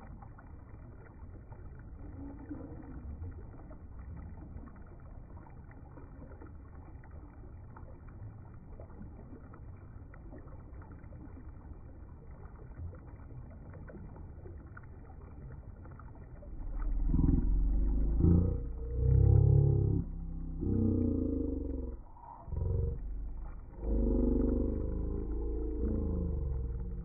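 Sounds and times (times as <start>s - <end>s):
loud low pitched sound: 16.5s - 27.0s.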